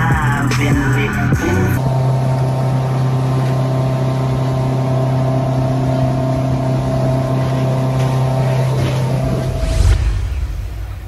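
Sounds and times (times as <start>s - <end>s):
motorboat engine droning: 0.0s - 11.0s
water rushing from wake: 4.0s - 11.0s.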